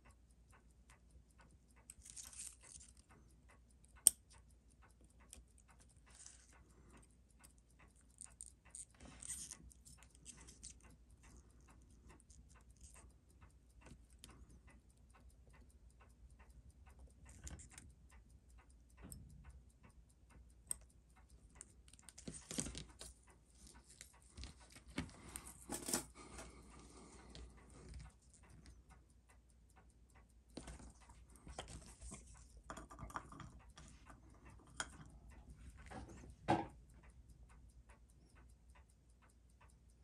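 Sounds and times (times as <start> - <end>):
clockwork ticking: 0.0 - 40.0.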